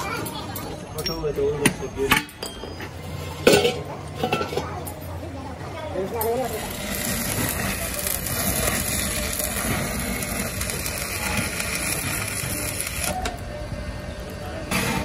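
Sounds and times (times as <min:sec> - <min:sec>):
arc welding sizzling crackle: 0:05.9 - 0:15.0.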